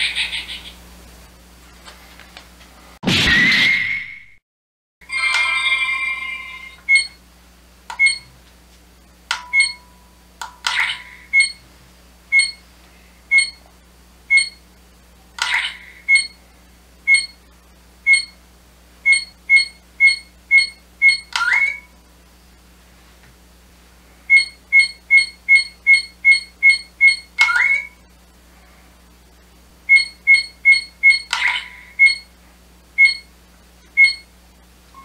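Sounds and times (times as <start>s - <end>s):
sharp electronic beeps: 6.9s - 7.2s, 8.0s - 8.3s, 9.4s - 9.8s, 10.9s - 11.6s, 12.3s - 12.6s, 13.3s - 13.6s, 14.3s - 14.6s, 15.7s - 16.4s, 17.1s - 17.4s, 18.1s - 18.4s, 19.1s - 21.9s, 24.3s - 28.0s, 29.9s - 32.3s, 33.0s - 33.3s, 34.0s - 34.3s.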